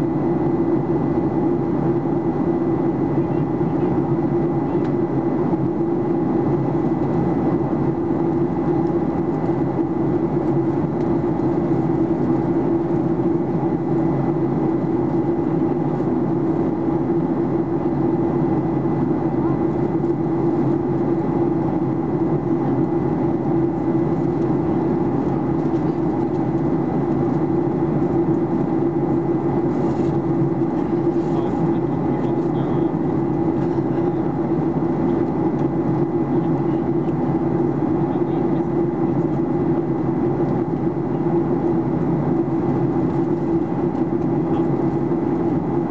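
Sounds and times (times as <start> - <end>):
airplane cabin drone: 0.0 - 45.9.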